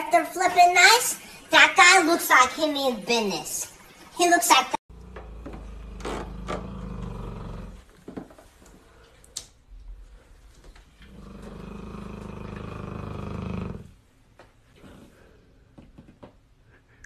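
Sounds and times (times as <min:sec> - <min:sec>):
animal growling: 0:04.9 - 0:07.9, 0:11.0 - 0:14.0.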